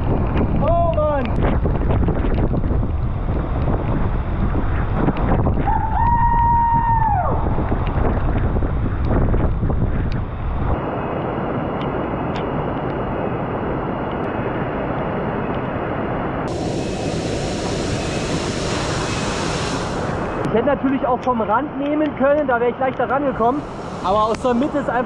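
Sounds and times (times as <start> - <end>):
wind buffeting microphone: 0.0 - 25.0
fast stream rushing: 15.6 - 25.0
waterfall rushing: 15.7 - 21.1, 23.2 - 25.0.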